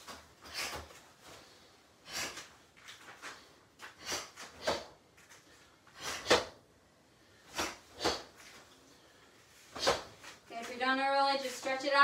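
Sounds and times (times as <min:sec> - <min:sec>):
sharp breaths puffed out: 0:00.4 - 0:06.5.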